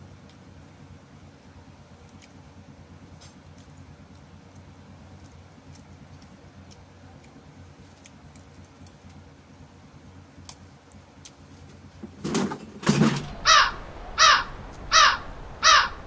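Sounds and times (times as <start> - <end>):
rough loud animal bursts: 12.9 - 16.0
animal harsh calls: 13.1 - 16.0.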